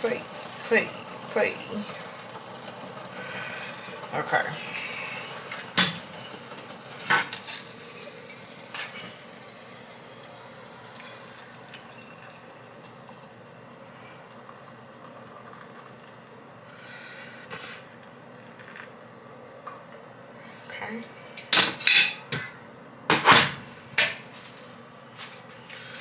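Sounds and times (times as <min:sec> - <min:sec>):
water pouring into a cup: 0:09.9 - 0:16.4
dishes clinking: 0:21.4 - 0:24.2.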